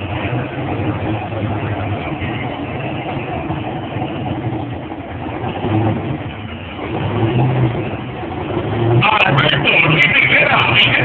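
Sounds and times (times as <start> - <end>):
engine throttle blips: 0.0 - 11.0
race car engine rumbling: 0.0 - 11.0.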